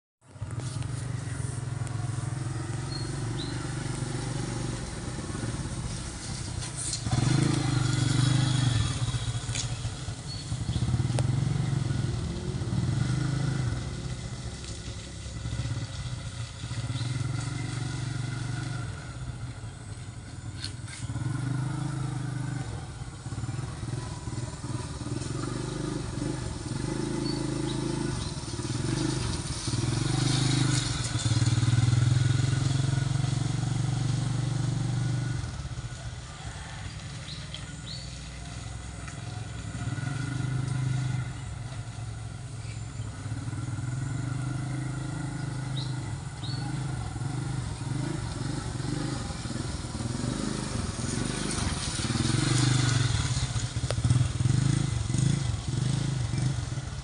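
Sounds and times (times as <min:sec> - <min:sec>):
motorcycle engine passing: 0:00.3 - 0:57.0.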